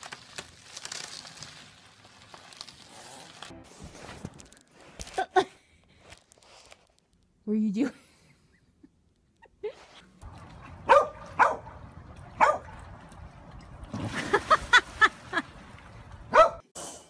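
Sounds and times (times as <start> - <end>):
water splash: 10.2 - 16.5
dog barking: 10.8 - 11.8, 12.4 - 12.8, 16.3 - 16.6.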